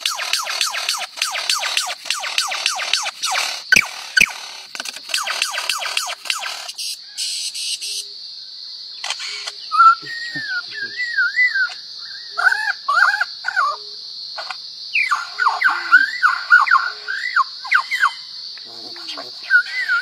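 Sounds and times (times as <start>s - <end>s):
lyrebird singing: 0.0s - 8.2s, 9.0s - 14.0s, 14.9s - 20.0s.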